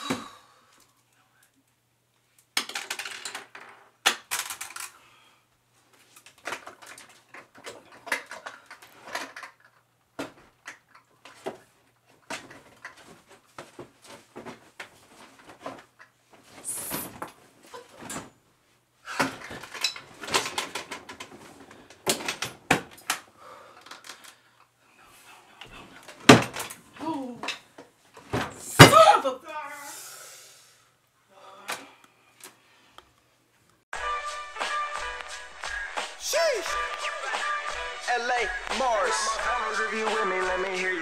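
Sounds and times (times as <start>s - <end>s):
small objects clattering on wood: 2.6s - 5.0s.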